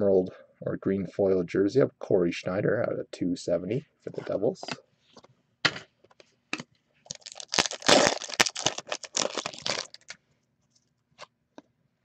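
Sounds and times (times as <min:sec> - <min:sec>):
cards and packaging crackling: 0:07.1 - 0:10.2.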